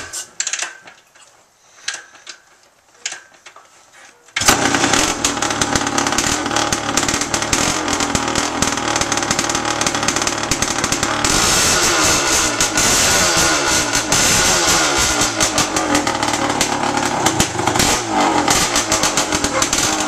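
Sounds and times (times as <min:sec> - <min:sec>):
motorcycle engine kick-started: 0:04.4 - 0:20.0
two-stroke engine running loudly: 0:04.4 - 0:20.0.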